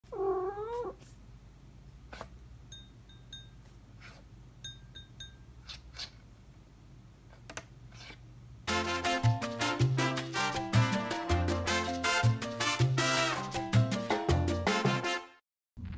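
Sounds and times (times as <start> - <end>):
cat meowing: 0.1 - 1.0.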